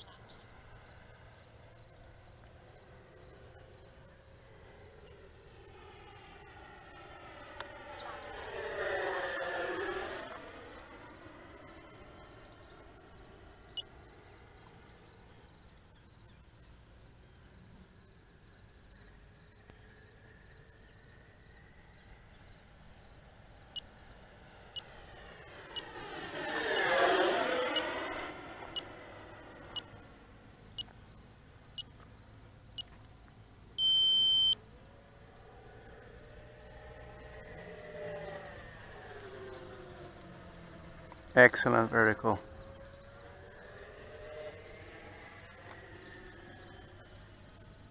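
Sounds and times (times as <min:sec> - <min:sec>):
electric jet fan whine: 0:00.0 - 0:15.6, 0:19.8 - 0:30.8, 0:34.4 - 0:47.9
short electronic beep: 0:33.8 - 0:34.6.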